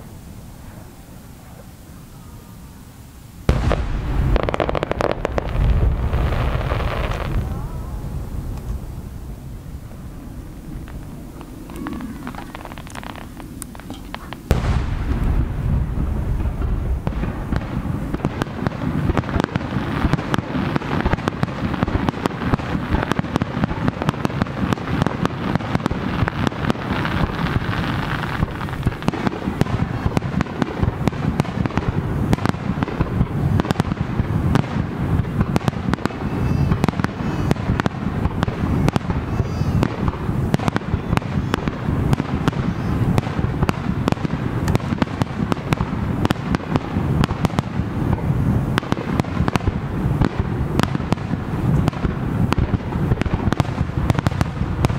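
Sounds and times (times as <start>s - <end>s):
fireworks bangs and crackles: 2.7s - 54.9s
low rumble: 3.5s - 18.3s.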